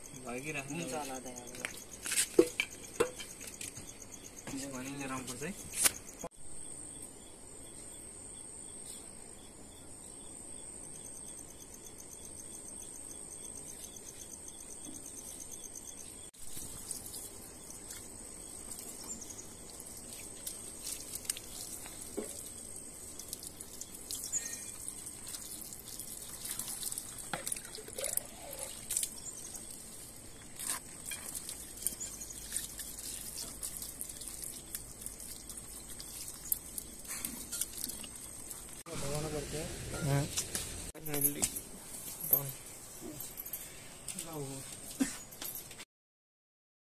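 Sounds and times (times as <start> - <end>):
high-pitched insect trill: 0.0 - 45.6
water splashing and dripping: 16.4 - 38.8.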